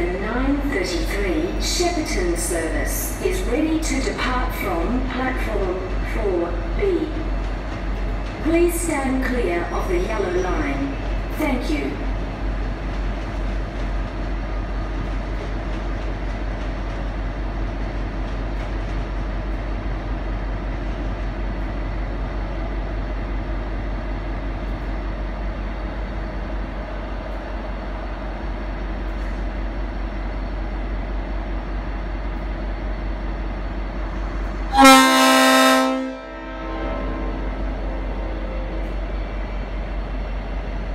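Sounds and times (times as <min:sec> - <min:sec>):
diesel locomotive idling: 0:00.0 - 0:40.9
train air horn chord: 0:34.7 - 0:38.7.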